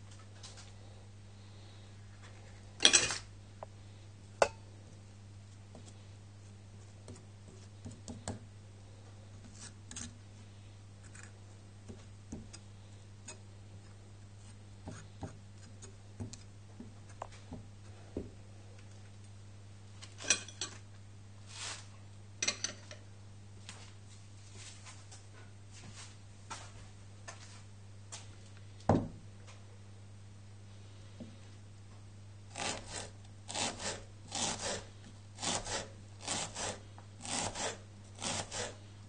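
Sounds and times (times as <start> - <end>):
steady low hum: 0.0 - 39.0
knife tapping and scraping squash: 5.7 - 8.5, 11.0 - 18.3, 32.5 - 38.8.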